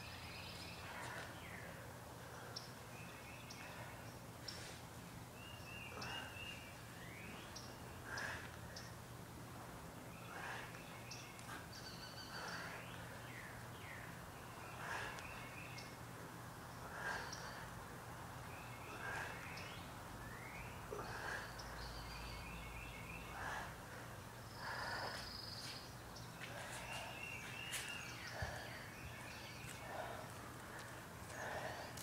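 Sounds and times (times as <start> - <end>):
birds chirping: 0.0 - 32.0
person breathing hard: 7.9 - 8.9, 10.2 - 11.7, 12.3 - 13.7, 14.6 - 15.8, 16.7 - 18.0, 18.7 - 19.8, 20.9 - 22.1, 23.1 - 32.0.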